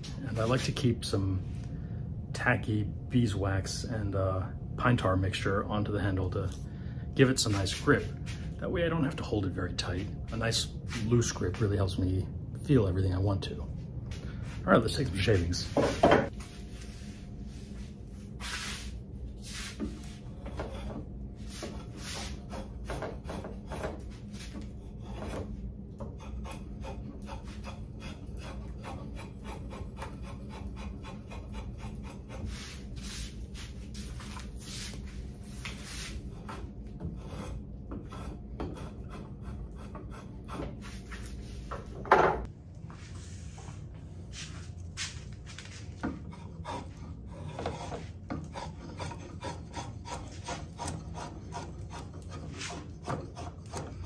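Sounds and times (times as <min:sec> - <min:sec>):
drawknife scraping wood: 0:19.6 - 0:34.4, 0:46.0 - 0:54.0.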